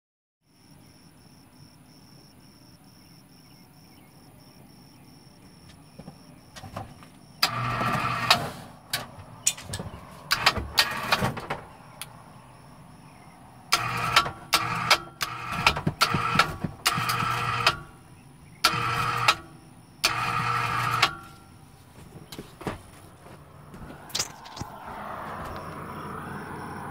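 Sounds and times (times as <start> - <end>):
electric hoist motor whining: 7.4 - 11.6, 13.7 - 18.0, 18.6 - 21.6.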